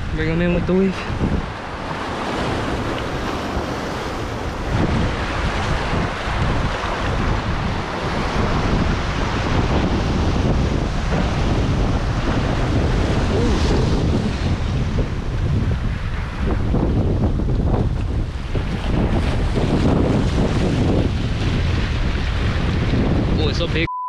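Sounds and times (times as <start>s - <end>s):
waves washing over boulders: 0.0s - 23.6s
wind buffeting microphone: 0.0s - 23.9s.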